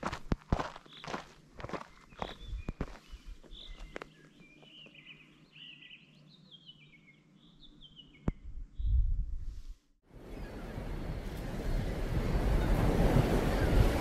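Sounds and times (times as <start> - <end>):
songbirds chirping and trilling: 0.6 - 9.0, 10.2 - 12.0
low rumble on microphone: 8.3 - 9.8.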